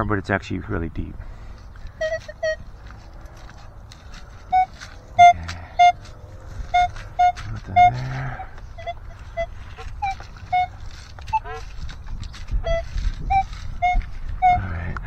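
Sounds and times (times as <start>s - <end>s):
metal detector beeps: 1.9s - 2.7s, 4.4s - 6.1s, 6.7s - 14.8s.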